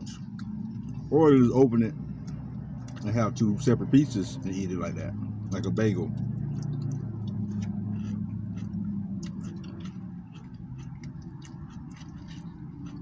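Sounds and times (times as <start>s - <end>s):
chewing with wet mouth clicks: 0.0s - 1.1s, 2.0s - 3.2s, 6.1s - 13.0s
steady low hum: 0.0s - 13.0s.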